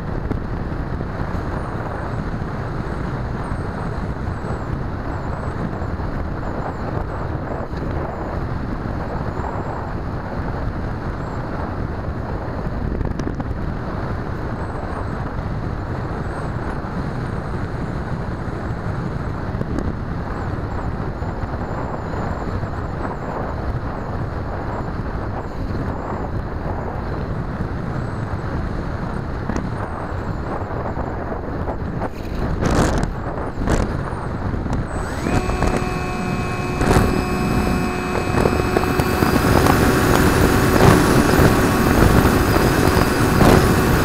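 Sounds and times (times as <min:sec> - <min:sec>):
wind rushing over microphone: 0:00.0 - 0:44.0
electric motor and propeller: 0:00.1 - 0:18.2, 0:29.1 - 0:44.0
faint high whine: 0:34.8 - 0:44.0.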